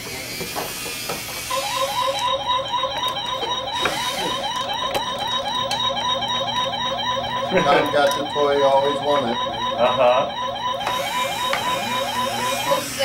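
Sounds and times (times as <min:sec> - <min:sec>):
toy hissing whir: 0:00.0 - 0:01.8, 0:12.7 - 0:13.0
toy warbling electronic chirp: 0:01.5 - 0:13.0.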